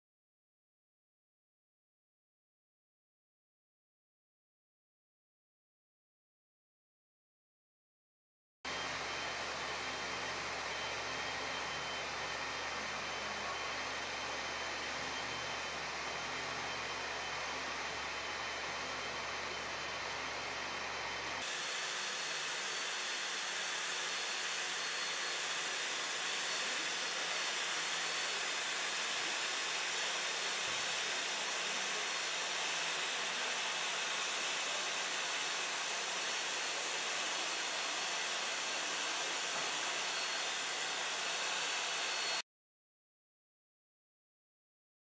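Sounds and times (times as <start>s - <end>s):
plastic welder hissing with high whine: 8.7s - 42.4s.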